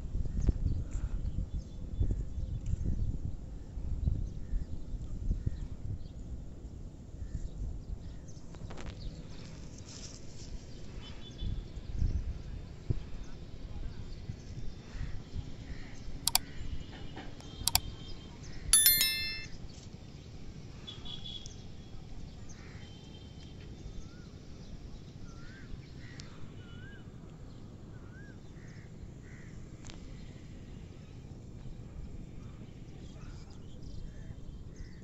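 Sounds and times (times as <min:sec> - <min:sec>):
bright bell ding: 0:18.8 - 0:19.5
mouse click sound effects: 0:18.8 - 0:19.5.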